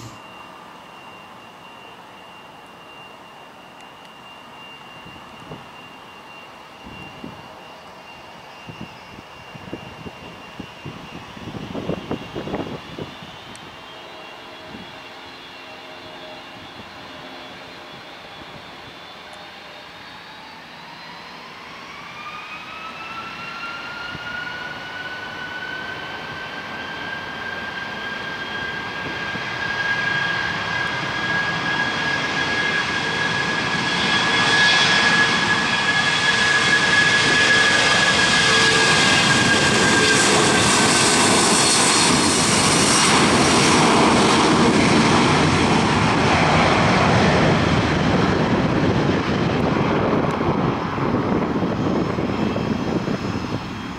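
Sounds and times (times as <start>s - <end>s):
rushing jet noise: 0.0s - 0.3s, 26.2s - 53.9s
jet engine whine rising: 0.0s - 53.9s.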